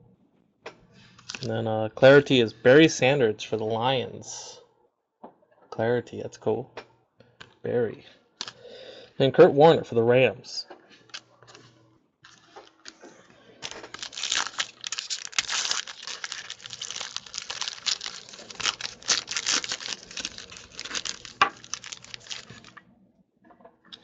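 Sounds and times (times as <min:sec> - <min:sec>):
foil wrapper tearing and crinkling: 0:13.6 - 0:22.8.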